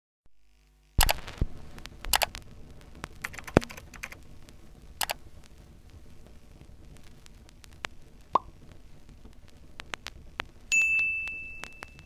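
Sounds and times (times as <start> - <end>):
keyboard typing clicks: 2.1 - 2.4, 3.2 - 4.2, 5.0 - 5.2.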